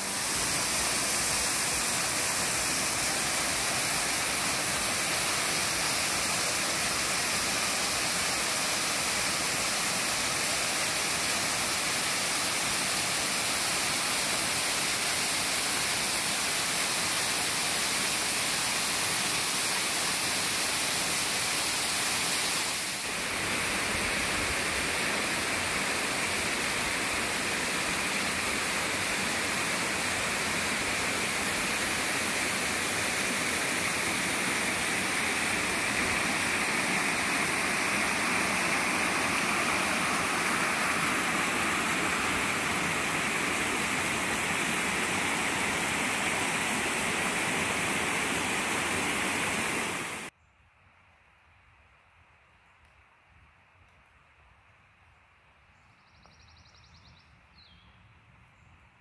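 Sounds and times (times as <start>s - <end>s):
flowing water and waterfall: 0.0s - 50.3s.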